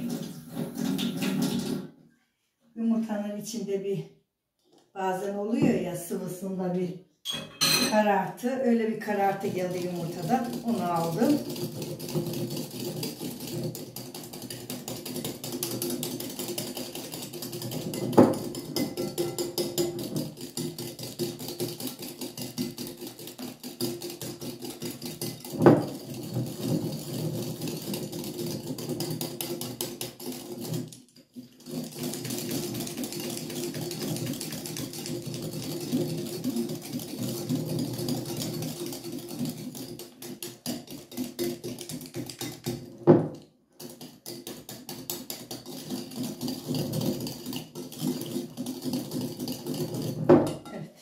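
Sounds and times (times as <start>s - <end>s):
whisk clicking against glass bowl: 9.0s - 26.4s, 31.9s - 42.8s.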